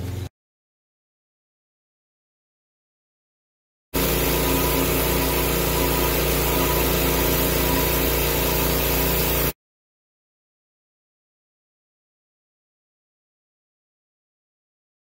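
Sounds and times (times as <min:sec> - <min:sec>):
gas engine pressure washer: 0:04.0 - 0:09.6
high-pressure water spray hiss: 0:04.0 - 0:09.6.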